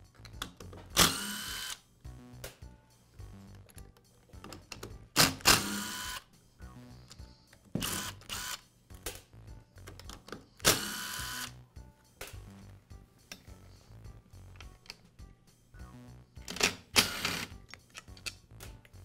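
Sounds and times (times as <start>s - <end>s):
background music: 0.0s - 19.0s
cordless drill motor whine: 5.6s - 6.2s.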